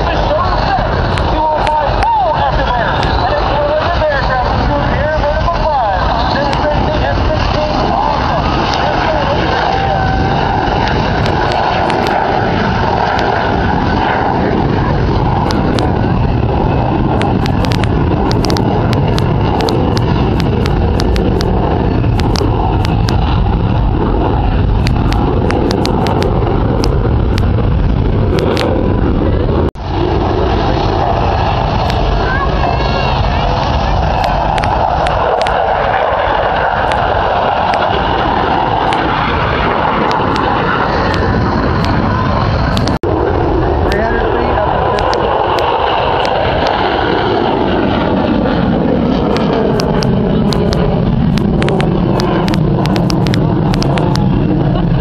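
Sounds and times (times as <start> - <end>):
jet noise overhead: 0.0 - 55.0.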